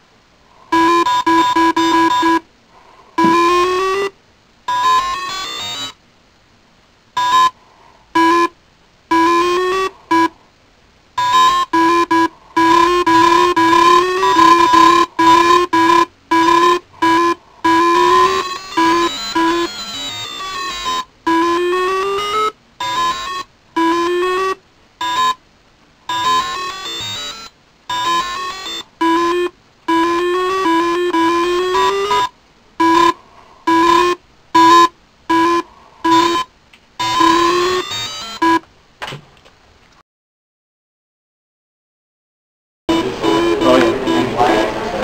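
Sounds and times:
synthesizer tone bursts: 0.7s - 2.5s, 3.2s - 6.0s, 8.2s - 10.4s, 11.2s - 25.4s, 26.1s - 38.6s, 42.9s - 44.7s.

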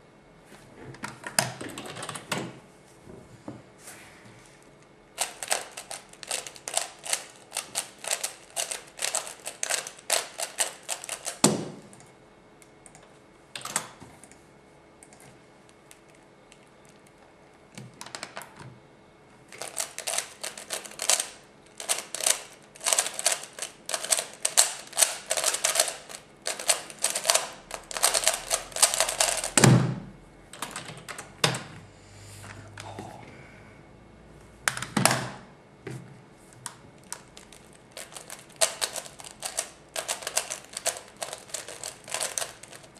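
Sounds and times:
puzzle cube clicking as turned: 5.2s - 11.4s, 19.6s - 29.6s, 37.1s - 42.9s.

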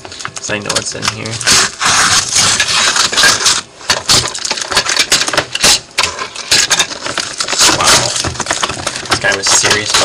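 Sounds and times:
cardboard and tape crackling: 0.0s - 10.0s.

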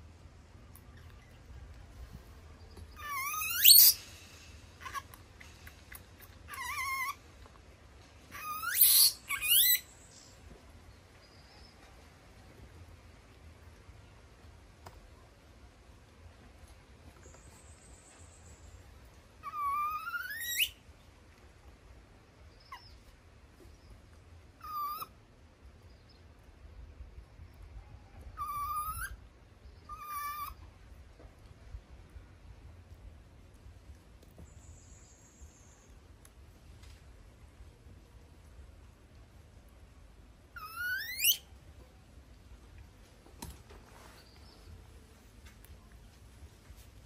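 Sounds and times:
baby monkey crying: 2.9s - 4.0s, 6.5s - 7.2s, 8.3s - 9.8s, 19.4s - 20.7s, 24.6s - 25.2s, 28.3s - 29.2s, 29.9s - 30.6s, 40.5s - 41.4s
faint chirp: 34.4s - 36.1s.

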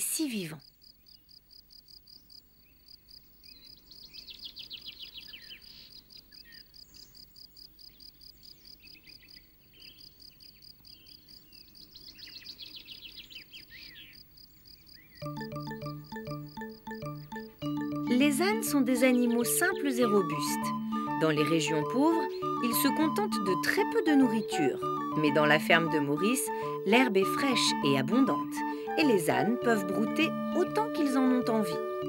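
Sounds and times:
songbirds trilling: 3.4s - 32.0s
crickets chirping: 13.7s - 18.6s
music: 15.2s - 32.0s.

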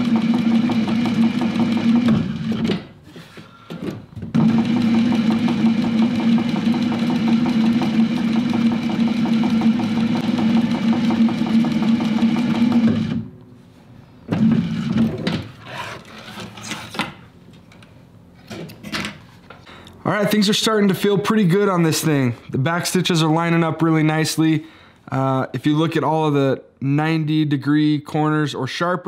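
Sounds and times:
sewing machine stitching: 0.0s - 2.9s, 4.3s - 13.3s.

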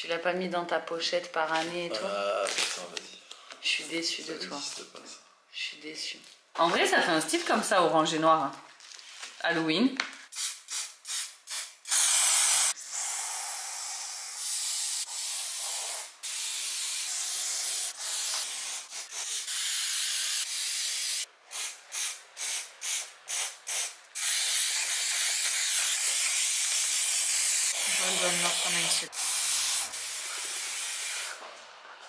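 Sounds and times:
spray paint can hissing: 10.3s - 31.4s.

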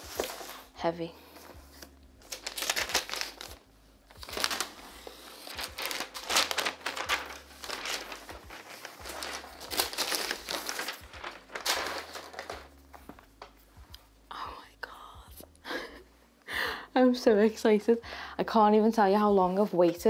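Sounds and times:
plastic wrap rustling and crackling: 0.0s - 0.8s, 1.4s - 13.7s.

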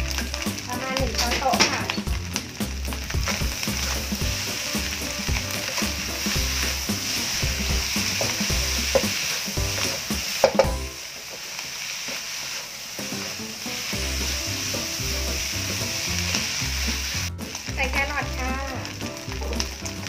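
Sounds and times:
rice sizzling in a wok: 0.0s - 20.0s
wooden spatula scraping a wok: 0.0s - 20.0s.

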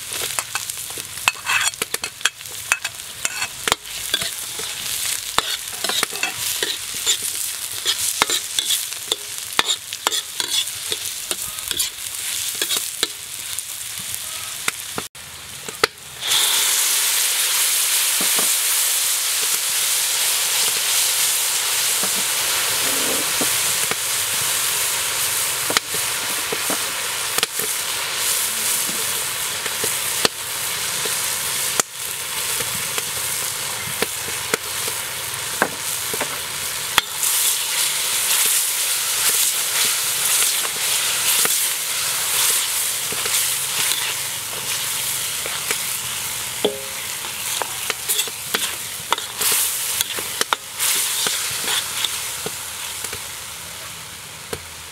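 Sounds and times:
food sizzling in a wok: 0.0s - 54.9s
metal ladle scraping a wok: 0.2s - 13.2s, 16.2s - 16.9s, 22.0s - 23.9s, 37.0s - 52.4s.

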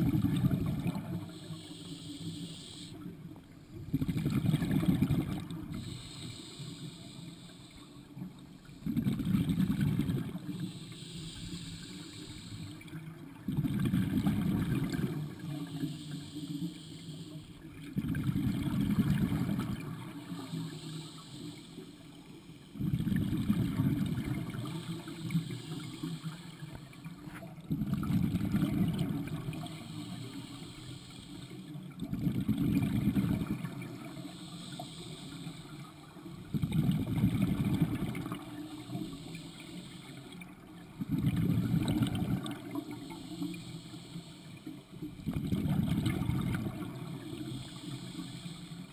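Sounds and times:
diver breathing through regulator: 0.4s - 3.1s, 4.7s - 9.0s, 10.0s - 13.1s, 13.9s - 17.7s, 18.9s - 27.3s, 28.7s - 31.8s, 33.0s - 40.6s, 41.5s - 48.9s
inhalation hiss: 0.6s - 3.2s, 5.6s - 8.1s, 10.2s - 12.9s, 14.3s - 17.7s, 18.9s - 27.3s, 29.2s - 31.8s, 33.1s - 36.5s, 37.9s - 45.0s, 46.2s - 48.9s
exhaled bubbles bursting: 3.9s - 5.7s, 8.8s - 10.5s, 13.0s - 15.5s, 22.8s - 24.8s, 27.7s - 29.6s, 32.0s - 34.1s, 36.5s - 38.6s, 40.9s - 42.9s, 45.2s - 47.2s.

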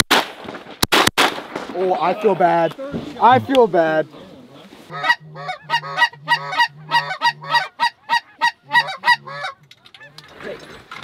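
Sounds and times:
geese honking: 3.2s - 10.6s.

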